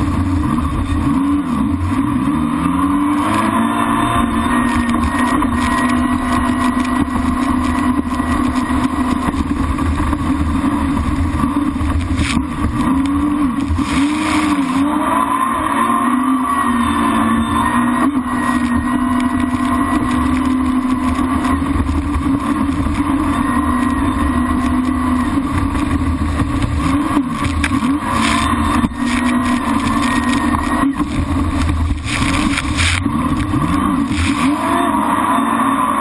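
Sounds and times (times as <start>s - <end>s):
jet ski engine whining: 0.0s - 36.0s.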